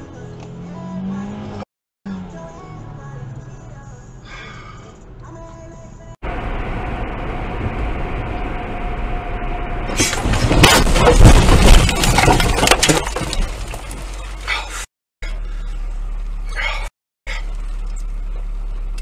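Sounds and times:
road and engine noise: 0:00.0 - 0:11.5, 0:12.2 - 0:19.0
car crash impacts: 0:09.9 - 0:14.2.

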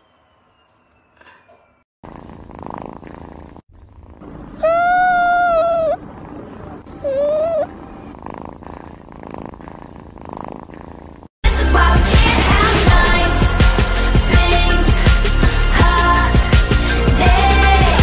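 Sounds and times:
cat purring: 0:02.0 - 0:11.4
cat mewing: 0:04.4 - 0:07.8.

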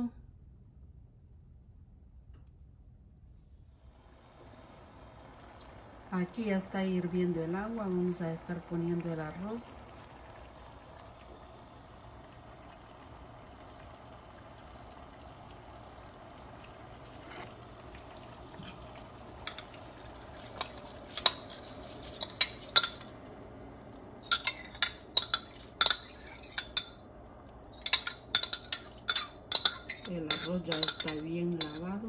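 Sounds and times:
water boiling in a pan: 0:03.8 - 0:32.0
utensil clinking on glass bowl: 0:19.5 - 0:23.2, 0:24.2 - 0:27.0, 0:27.7 - 0:31.9.

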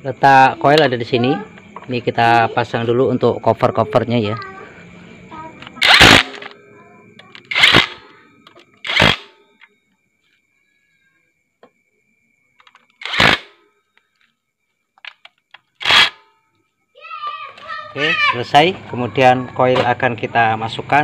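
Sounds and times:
impact wrench bursts: 0:05.8 - 0:06.5, 0:07.5 - 0:08.1, 0:08.8 - 0:09.4, 0:13.0 - 0:13.6, 0:15.8 - 0:16.3.

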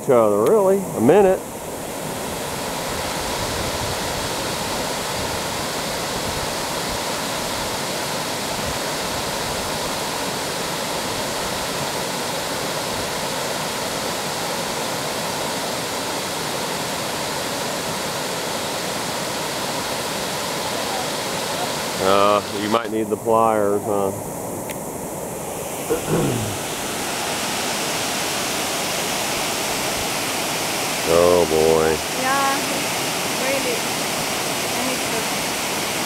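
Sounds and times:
water rushing over dam spillway: 0:00.0 - 0:36.0.

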